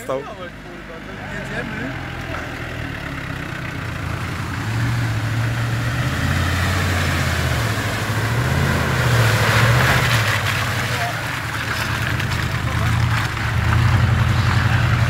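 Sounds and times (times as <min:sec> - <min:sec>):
off-road vehicle engine under load: 0:00.0 - 0:15.0.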